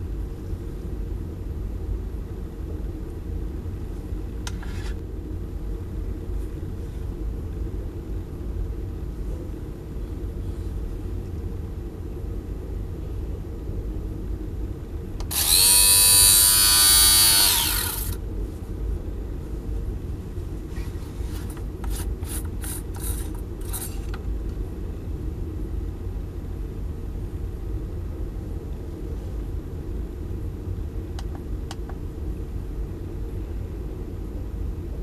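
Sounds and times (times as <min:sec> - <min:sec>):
small electric motor whining: 0:15.2 - 0:18.2, 0:21.8 - 0:24.1.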